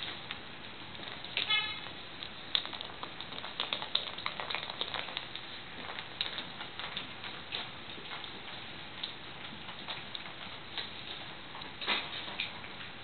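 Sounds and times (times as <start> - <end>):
treats rattling inside a ball: 2.2 - 8.6.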